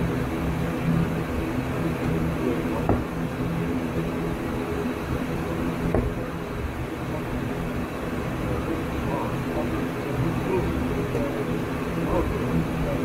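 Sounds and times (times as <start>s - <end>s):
turboprop engines idling: 0.0s - 13.0s.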